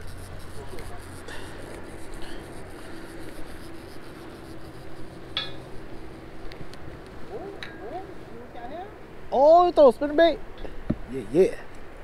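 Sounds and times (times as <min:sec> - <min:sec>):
hands rubbing fishing tackle: 0:00.0 - 0:06.0
steady low hum: 0:00.0 - 0:09.4.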